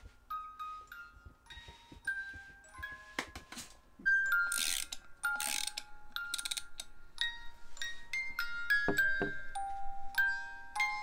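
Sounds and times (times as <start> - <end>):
music box playing: 0.3 - 11.0
music box winding clicks: 4.5 - 6.9.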